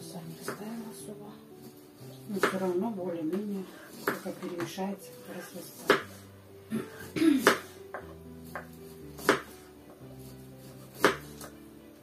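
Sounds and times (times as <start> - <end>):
slow background music: 0.0 - 12.0
knives knocking on cutting boards: 7.4 - 9.6, 11.0 - 11.6.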